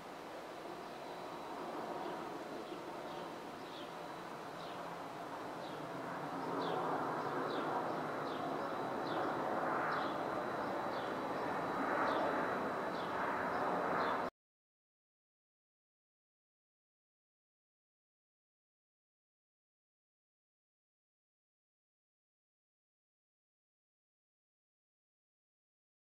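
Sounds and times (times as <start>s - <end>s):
distant traffic rumble: 0.0s - 14.3s
bird chirping: 2.0s - 4.9s, 5.6s - 14.2s.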